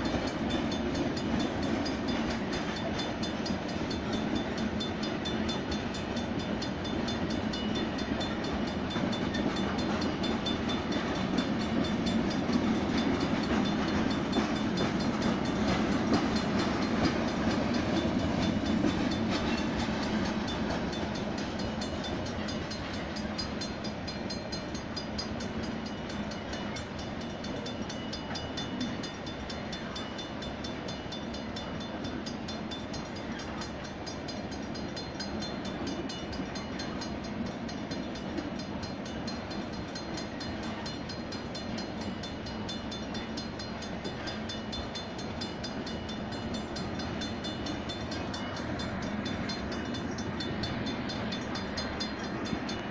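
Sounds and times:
freight train wheels rumbling: 0:00.0 - 0:52.9.

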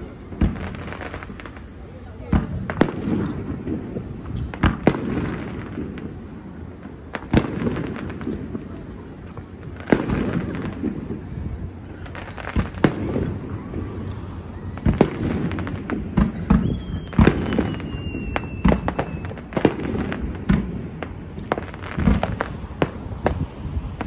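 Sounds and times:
low rumble of echoing reports: 0:00.0 - 0:18.0
fireworks bangs: 0:00.0 - 0:24.0
falling firework whistle: 0:09.9 - 0:24.0.

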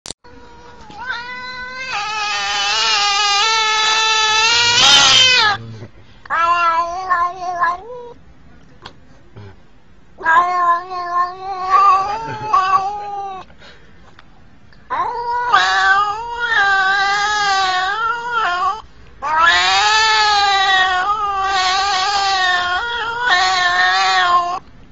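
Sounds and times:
cat yowling: 0:00.3 - 0:05.6, 0:06.3 - 0:08.2, 0:10.2 - 0:13.5, 0:14.9 - 0:24.6.

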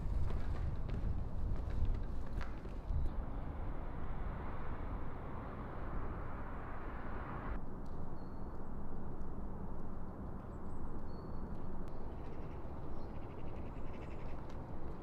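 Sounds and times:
low rumble: 0:02.9 - 0:08.1.

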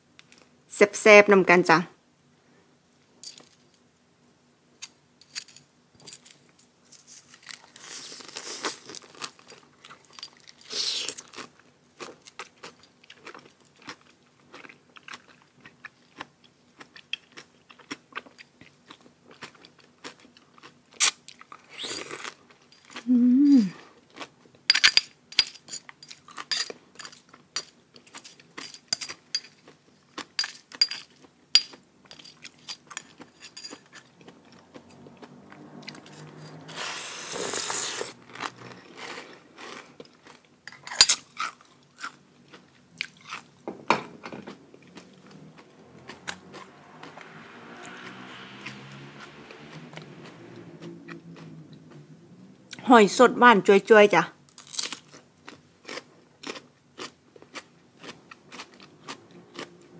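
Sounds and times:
chewing and crunching: 0:06.0 - 0:23.1, 0:23.8 - 0:24.7, 0:25.8 - 0:43.6, 0:44.4 - 0:47.4, 0:49.4 - 0:52.1, 0:54.5 - 0:59.9.

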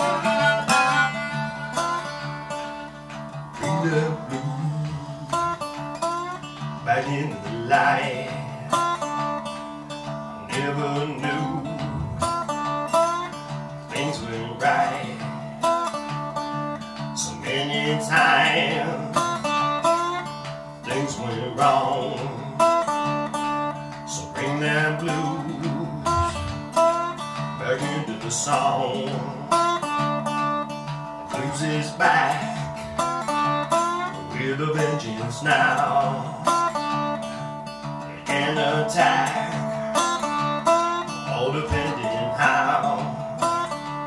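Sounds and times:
man singing: 0:00.0 - 0:01.6, 0:03.5 - 0:09.2, 0:10.4 - 0:12.6, 0:13.8 - 0:15.7, 0:17.1 - 0:22.9, 0:24.0 - 0:29.9, 0:31.3 - 0:33.3, 0:33.9 - 0:37.4, 0:38.0 - 0:40.3, 0:40.9 - 0:43.8
slide guitar playing blues: 0:00.0 - 0:44.0.

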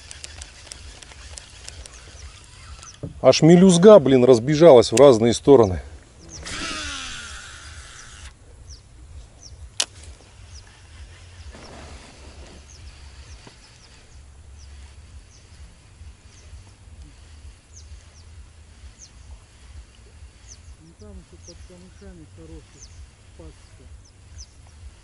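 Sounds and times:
sharp click: 0:00.0 - 0:02.0, 0:09.7 - 0:10.2
fishing reel whirring: 0:00.0 - 0:03.9, 0:06.2 - 0:08.5, 0:09.4 - 0:25.0
high bird chirps: 0:00.1 - 0:03.2, 0:06.2 - 0:25.0
wind rumble on microphone: 0:08.4 - 0:25.0.

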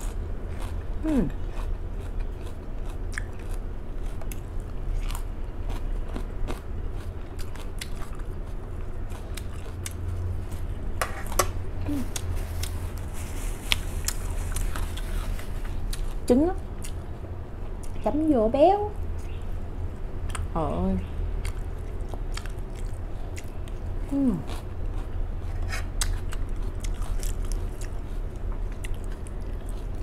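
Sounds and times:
chewing crisp lettuce: 0:00.0 - 0:11.0, 0:11.8 - 0:18.0, 0:21.3 - 0:30.0
steady low hum: 0:00.0 - 0:30.0.

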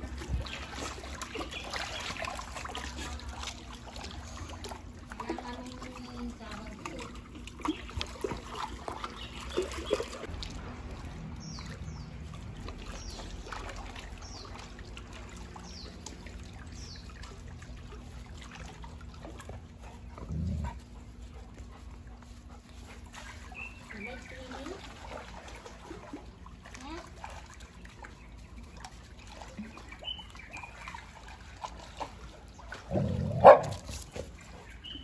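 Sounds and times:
water trickling into pond: 0:00.0 - 0:35.0
dog sounds: 0:32.8 - 0:35.0.

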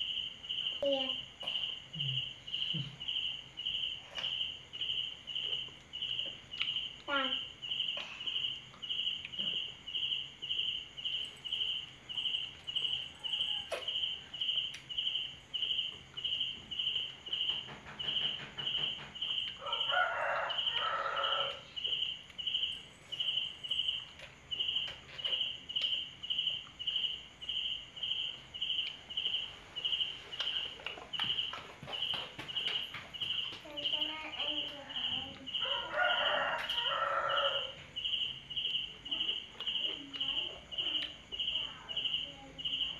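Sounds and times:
rooster crowing: 0:12.7 - 0:14.6, 0:19.5 - 0:21.9, 0:35.5 - 0:37.9.

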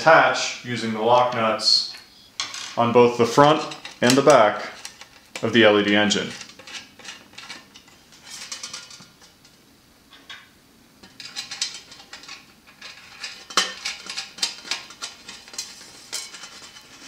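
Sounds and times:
metal parts clinking on steel plate: 0:03.4 - 0:09.3, 0:11.0 - 0:17.0.

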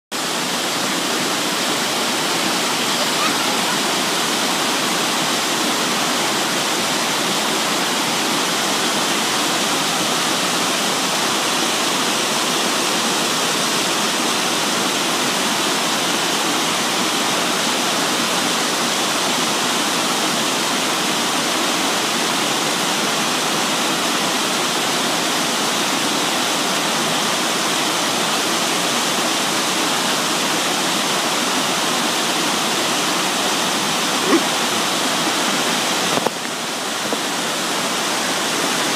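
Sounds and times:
small waterfall pouring: 0:00.1 - 0:38.9.

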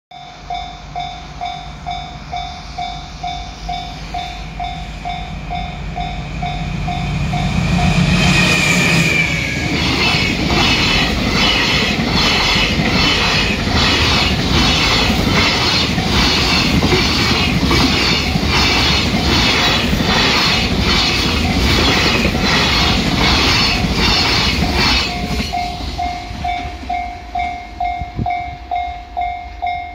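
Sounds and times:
diesel locomotive engine rumble: 0:00.2 - 0:29.9
train wheels clattering over rail joints: 0:08.5 - 0:26.6.

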